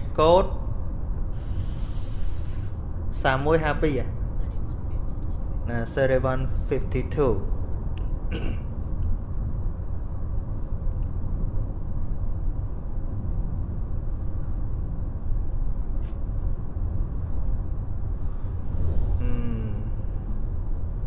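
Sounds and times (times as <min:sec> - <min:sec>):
low rumble: 0:00.0 - 0:21.0
hiss: 0:01.3 - 0:02.8.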